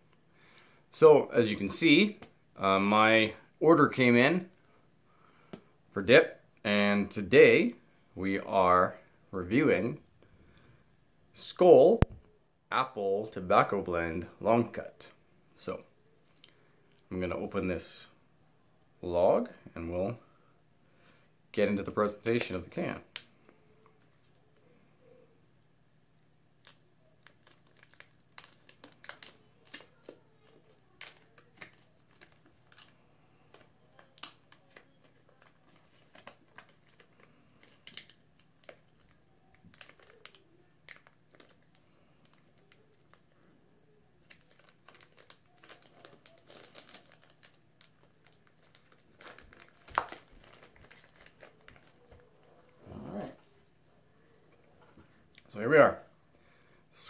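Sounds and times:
crinkling and crackling packaging: 0:21.6 - 0:53.6
packaging being torn open: 0:26.6 - 0:30.2, 0:30.8 - 0:32.9, 0:33.5 - 0:43.2, 0:44.2 - 0:52.2.

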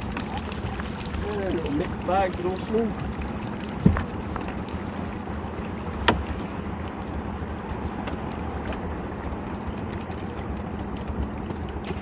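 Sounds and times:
rushing water: 0:00.0 - 0:12.0
wind: 0:00.0 - 0:12.0
faint clicks and rattles: 0:07.6 - 0:12.0.

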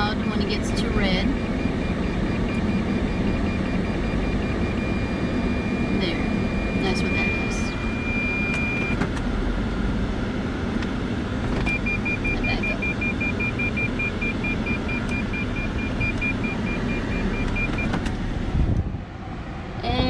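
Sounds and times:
parking sensor beeping rapidly: 0:00.0 - 0:09.2, 0:11.6 - 0:18.4
car engine low rumble: 0:00.0 - 0:20.0.

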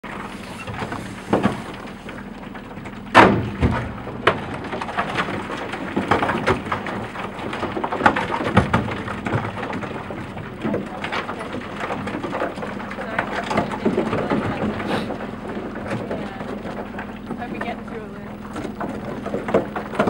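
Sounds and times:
ice knocking against hull: 0:00.0 - 0:20.0
steady low hum: 0:00.0 - 0:20.0.

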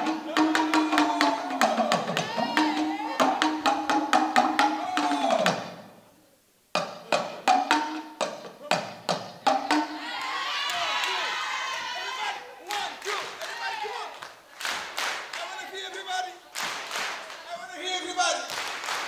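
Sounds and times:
fast sharp drum strikes: 0:00.0 - 0:06.0, 0:06.7 - 0:10.4.

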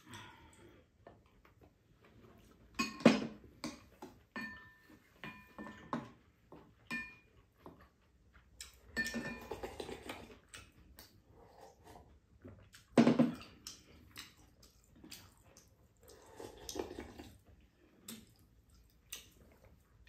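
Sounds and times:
spoons clinking on ceramic bowls: 0:02.8 - 0:03.3, 0:04.3 - 0:06.1, 0:06.8 - 0:07.3, 0:08.6 - 0:09.7
slurping: 0:08.6 - 0:20.0.

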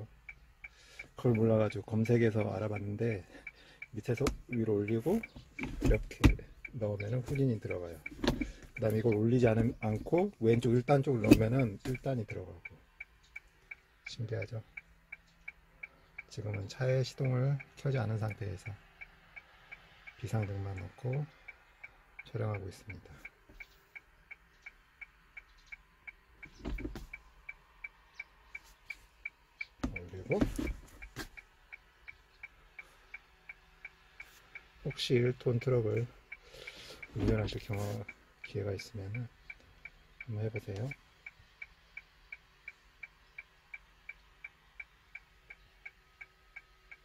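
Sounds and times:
hazard light flasher ticking: 0:00.0 - 0:23.0.

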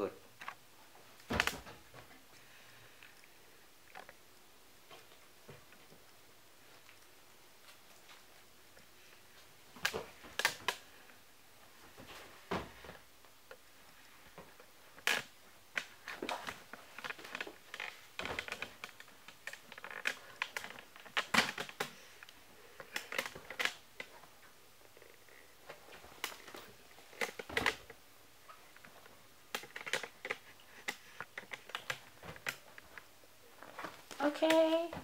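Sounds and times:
clicks taps and rustles: 0:14.3 - 0:35.0.

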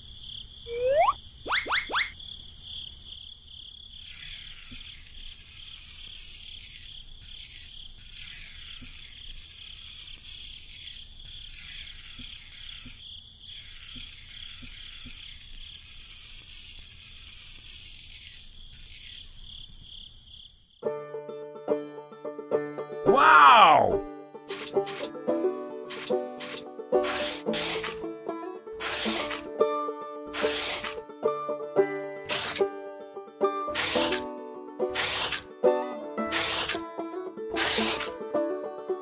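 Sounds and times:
quick rising whistles: 0:00.7 - 0:02.2
pencil scraping through sand: 0:03.9 - 0:20.2, 0:24.5 - 0:25.2, 0:25.9 - 0:28.0, 0:28.8 - 0:29.5, 0:30.3 - 0:31.0, 0:32.3 - 0:32.7, 0:33.7 - 0:34.3, 0:34.9 - 0:35.5, 0:36.3 - 0:36.8, 0:37.6 - 0:38.2.

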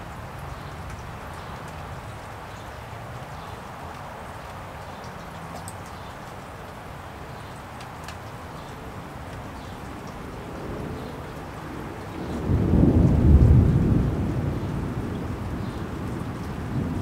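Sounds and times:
light rain falling: 0:00.0 - 0:17.0
rolling thunder: 0:12.2 - 0:17.0.

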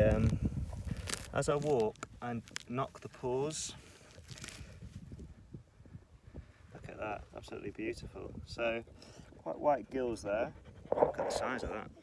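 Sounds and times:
grass rustling: 0:00.0 - 0:05.4.

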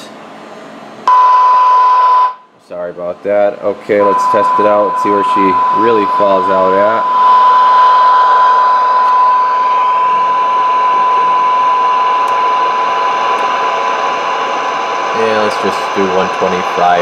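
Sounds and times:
steady test tone: 0:03.4 - 0:17.0.

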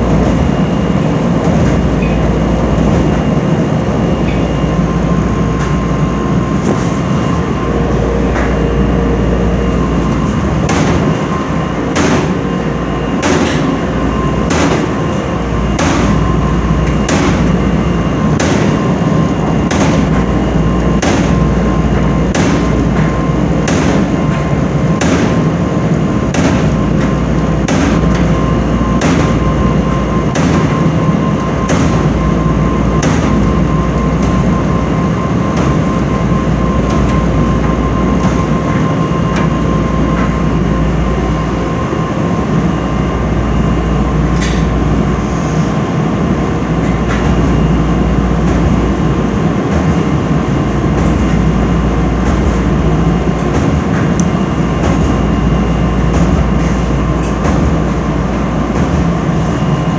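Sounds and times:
dryer drum rumbling: 0:00.0 - 0:59.9
sharp knock in dryer: 0:10.6 - 0:12.5, 0:13.1 - 0:15.1, 0:15.7 - 0:17.6, 0:18.3 - 0:18.9, 0:19.6 - 0:20.3, 0:20.9 - 0:21.5, 0:22.3 - 0:25.5, 0:26.3 - 0:30.9, 0:31.6 - 0:32.3, 0:32.9 - 0:34.6, 0:54.8 - 0:55.3, 0:56.1 - 0:58.0.

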